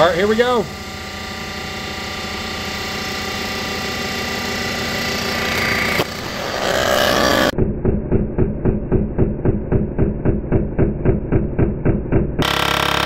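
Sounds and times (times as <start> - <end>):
resurfacing machine motor hum: 0.0 - 13.0
muffled rhythmic pulsing: 7.6 - 12.4.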